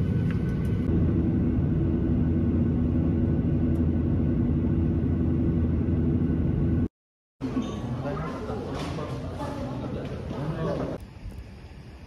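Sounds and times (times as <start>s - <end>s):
vehicle rumble in motion: 0.0s - 6.9s
steady low hum: 0.0s - 12.0s.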